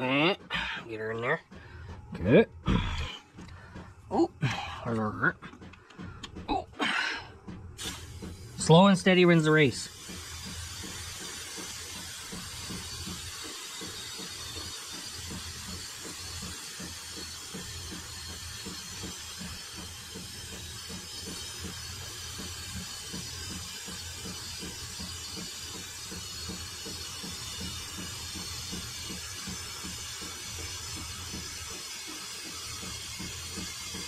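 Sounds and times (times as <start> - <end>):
oil pouring through a tube: 9.9 - 17.0.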